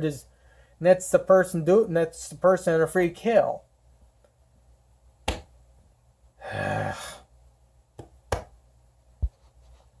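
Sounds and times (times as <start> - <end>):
man sighing: 6.4 - 7.3.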